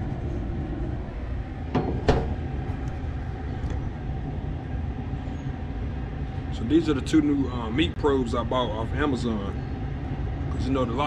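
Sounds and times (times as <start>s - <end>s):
faint hum: 0.0s - 11.0s
steady low rumble: 0.0s - 11.0s
sharp knocks: 1.7s - 2.5s.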